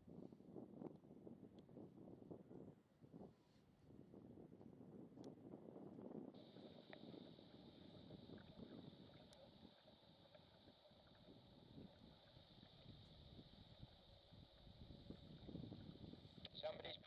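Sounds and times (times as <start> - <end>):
low wind rumble: 11.0 - 17.0
radio hiss: 16.4 - 17.0.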